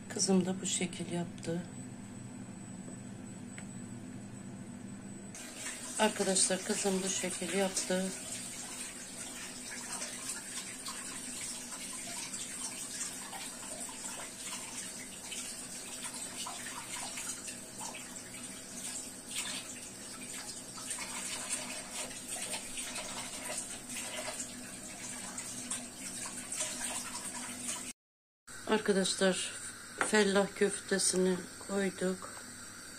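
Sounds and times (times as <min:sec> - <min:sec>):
low steady hum: 0:00.0 - 0:26.3.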